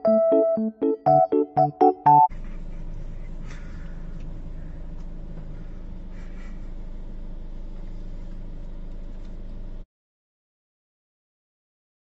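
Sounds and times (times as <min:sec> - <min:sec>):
car engine idling: 0:02.3 - 0:09.8.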